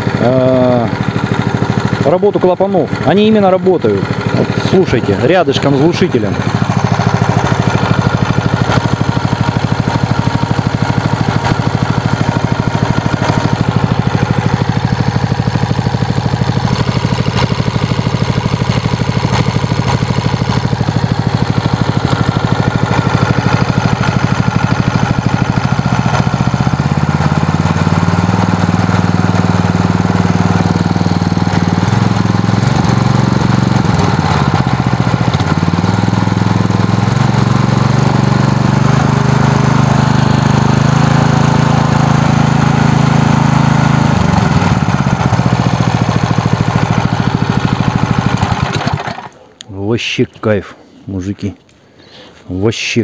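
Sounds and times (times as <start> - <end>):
petrol engine running: 0.0 - 49.6
engine valve clatter: 7.0 - 24.5, 47.1 - 49.4.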